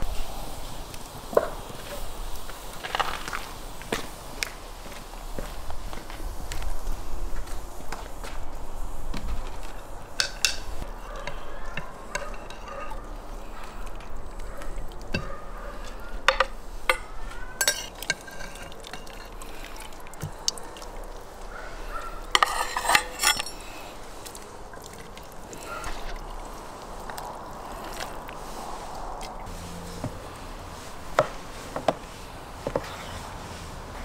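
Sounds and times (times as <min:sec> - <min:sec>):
metal skimmer scraping a pot: 0:09.6 - 0:26.5.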